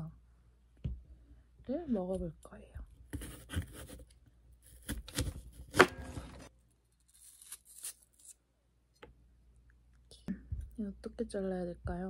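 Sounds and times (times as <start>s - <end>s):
knife cutting apple: 3.1s - 8.4s
knife scraping cutting board: 4.7s - 6.5s.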